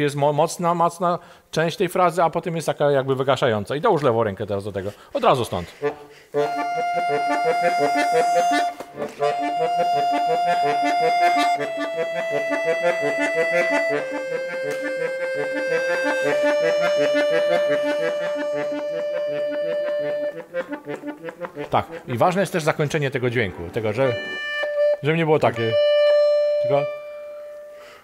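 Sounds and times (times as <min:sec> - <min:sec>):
accordion melody: 0:05.2 - 0:28.0.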